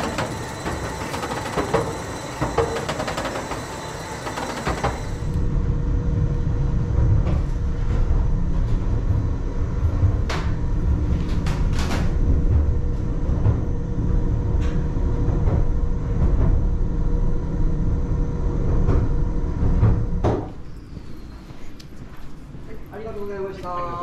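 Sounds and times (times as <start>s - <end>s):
mine train rumbling: 0.0s - 5.4s.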